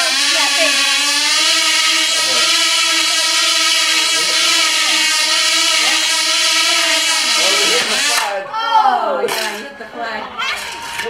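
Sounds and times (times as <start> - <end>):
model engine high whine: 0.0 - 8.4.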